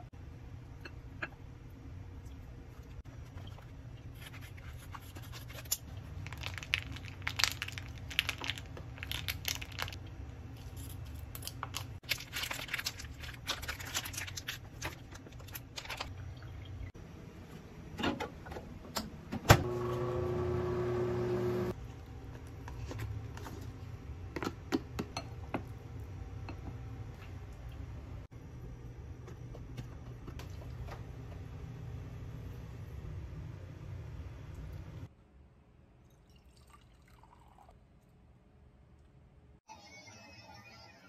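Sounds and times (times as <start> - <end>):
plastic packaging crinkling and tearing: 4.4 - 10.0, 10.6 - 16.1
microwave oven humming: 16.4 - 21.8.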